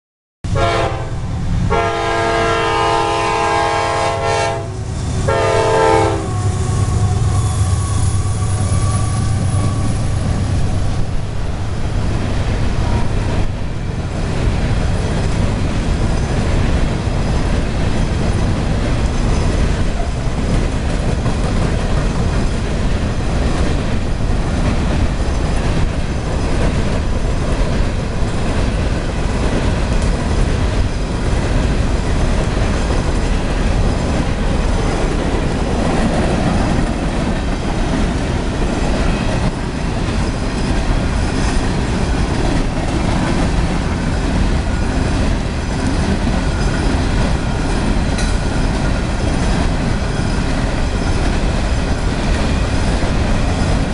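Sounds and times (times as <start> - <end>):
freight train rumbling: 0.4 - 53.9
locomotive air horn blasts: 0.5 - 10.2
wheels clicking over rail joints: 12.8 - 53.9.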